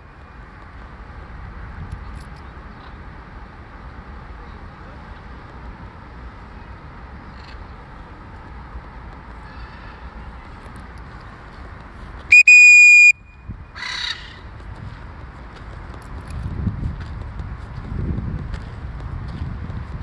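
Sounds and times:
outdoor background noise: 0.0s - 20.0s
whistle blast: 12.3s - 13.4s
macaw squawk: 13.8s - 14.5s.

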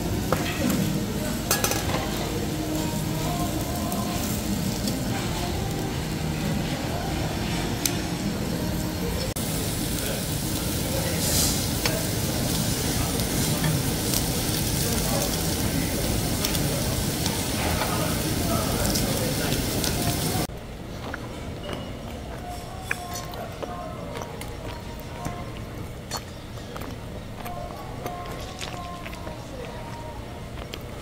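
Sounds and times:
meat sizzling on grill plate: 0.0s - 20.5s.

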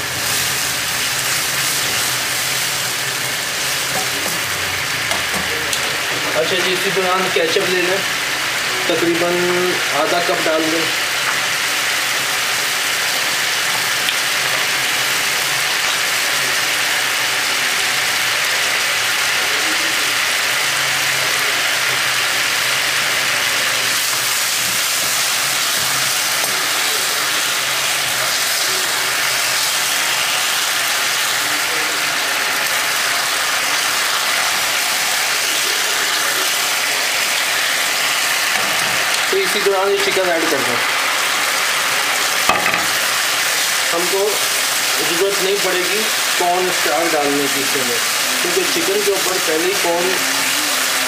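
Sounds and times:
sauce sizzling and bubbling: 0.0s - 51.0s.

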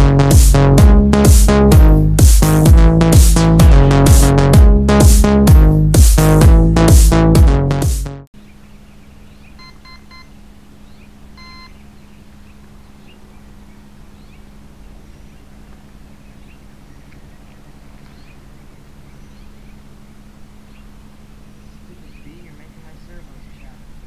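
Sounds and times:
steady low hum: 0.0s - 7.7s, 8.4s - 24.0s
faint bird chirps: 8.4s - 23.8s
electronic beeps: 9.6s - 10.3s, 11.4s - 11.8s.

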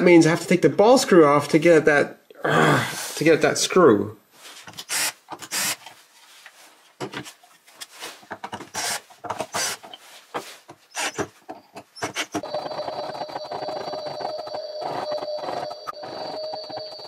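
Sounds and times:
parts rubbing and clattering: 4.4s - 17.0s.

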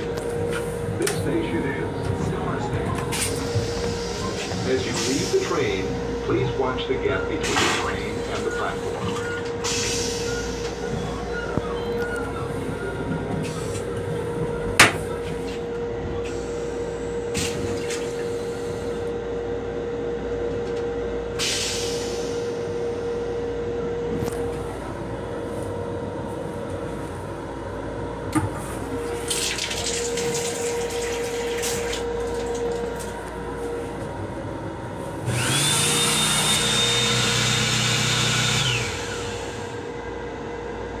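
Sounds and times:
faucet running water: 29.3s - 32.8s
hand dryer whining: 35.3s - 39.9s.

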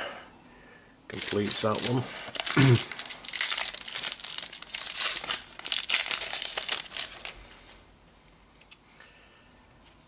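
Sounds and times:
foil wrapper crinkling and tearing: 1.1s - 7.4s.

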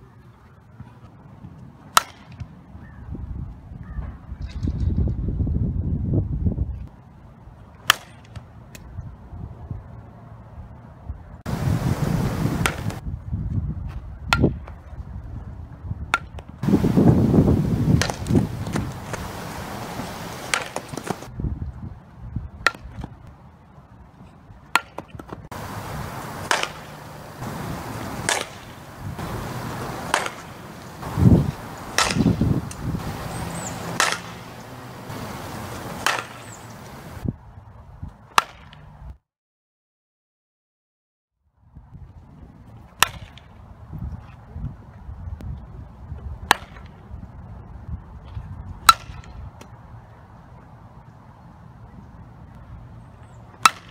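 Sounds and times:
bat cracking against ball: 2.0s - 2.5s, 7.9s - 8.4s, 12.1s - 13.0s, 16.1s - 21.3s, 24.7s - 37.2s, 38.4s - 38.8s, 43.0s - 43.5s, 46.5s - 46.9s, 48.9s - 49.7s, 53.6s - 53.9s
wind noise on microphone: 2.4s - 7.7s, 8.8s - 39.2s, 41.6s - 53.4s.

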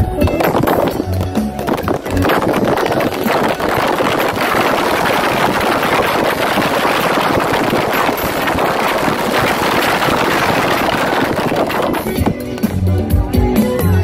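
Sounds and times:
firecrackers crackling: 0.4s - 12.9s.

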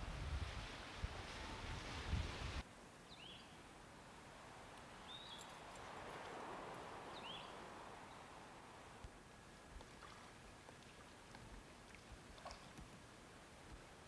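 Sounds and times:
wind on microphone: 0.0s - 2.6s
outdoor hiss: 0.0s - 14.0s
bird chirping: 3.0s - 3.6s, 5.0s - 5.7s, 7.1s - 8.4s.

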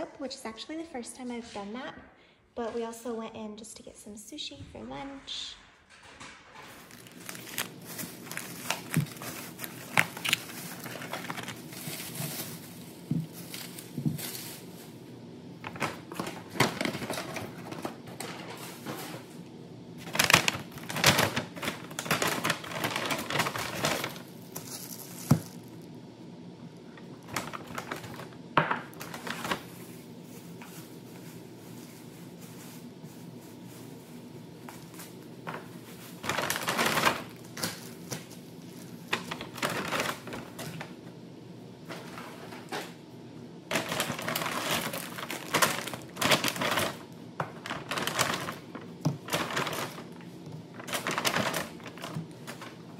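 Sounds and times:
plastic and paper packaging crinkling: 6.0s - 19.4s, 20.0s - 25.9s, 26.8s - 41.0s, 43.7s - 52.9s.

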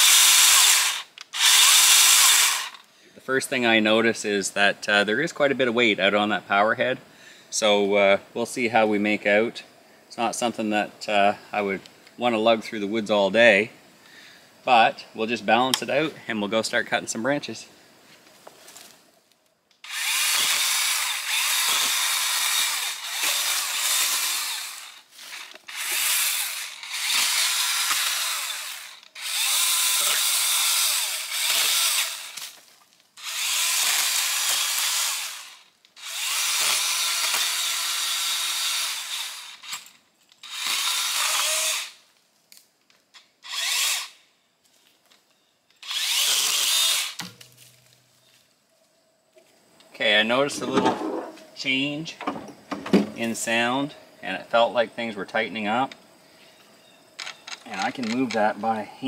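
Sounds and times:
pole saw cutting branches: 0.0s - 2.9s, 19.8s - 32.6s, 33.2s - 42.0s, 43.4s - 44.2s, 45.8s - 47.4s.

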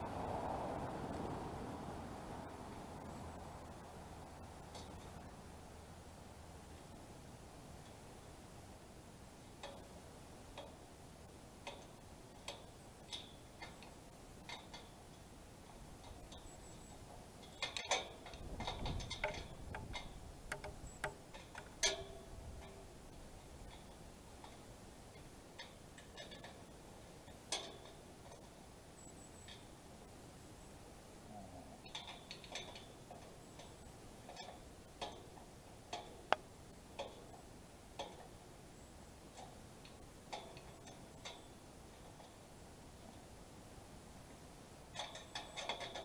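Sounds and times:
small clicks and taps on winch: 4.7s - 5.3s, 9.5s - 10.8s, 11.6s - 28.6s, 31.8s - 38.4s, 39.2s - 42.4s, 44.9s - 46.0s.

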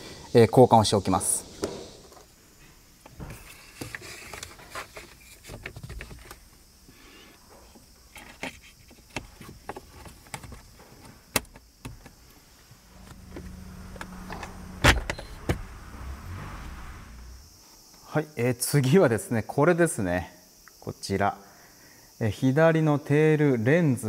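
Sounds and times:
low hum: 11.9s - 17.6s.

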